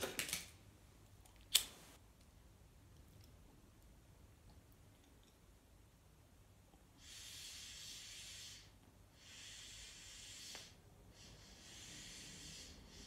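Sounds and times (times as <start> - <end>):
hissing draws of breath: 7.0 - 13.0.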